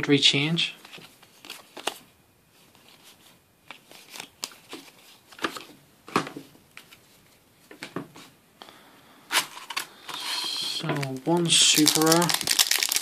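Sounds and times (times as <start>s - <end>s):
cards clicking and rustling: 0.8s - 2.0s, 3.6s - 5.7s, 9.4s - 13.0s.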